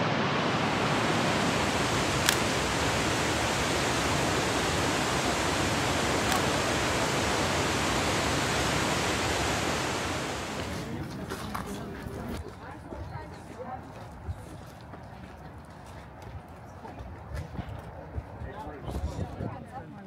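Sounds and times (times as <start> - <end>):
water rushing: 0.0 - 11.2.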